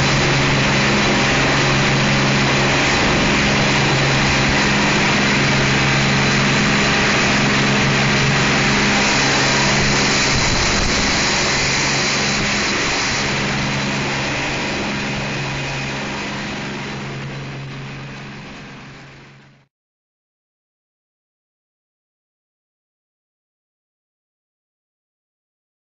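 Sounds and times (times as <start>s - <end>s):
boat diesel engines droning: 0.0s - 19.6s.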